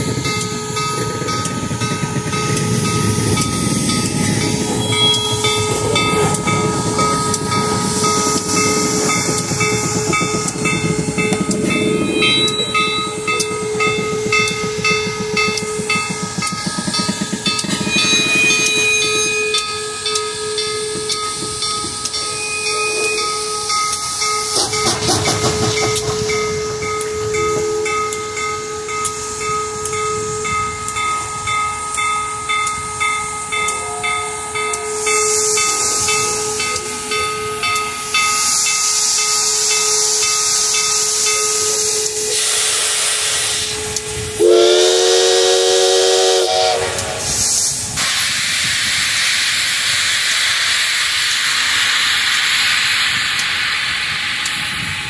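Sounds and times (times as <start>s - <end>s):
steam locomotive hissing steam: 0.0s - 55.0s
locomotive chord whistle: 2.2s - 23.7s, 39.3s - 47.6s.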